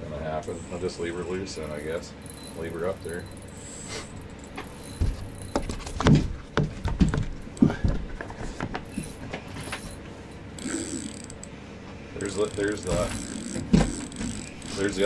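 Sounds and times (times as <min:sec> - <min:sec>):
reel gears ticking: 0:00.5 - 0:05.8, 0:08.9 - 0:11.5, 0:12.2 - 0:15.0.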